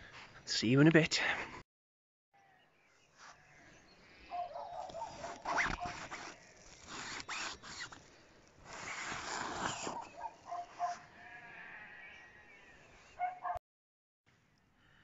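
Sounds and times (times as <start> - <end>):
zipper being pulled: 4.9 - 8.0, 8.6 - 11.0.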